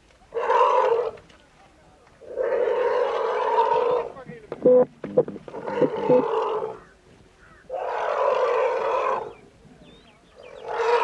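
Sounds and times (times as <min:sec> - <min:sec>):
elephant calf calling in distress: 0:02.2 - 0:09.4.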